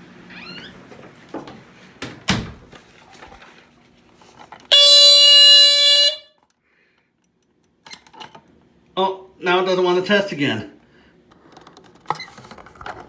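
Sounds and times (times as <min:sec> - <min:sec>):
smoke alarm horn blast: 0:04.7 - 0:06.4.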